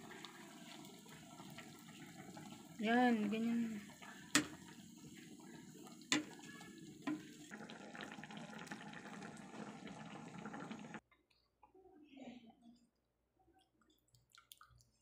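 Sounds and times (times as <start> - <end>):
sauce simmering and crackling: 0.0 - 11.0.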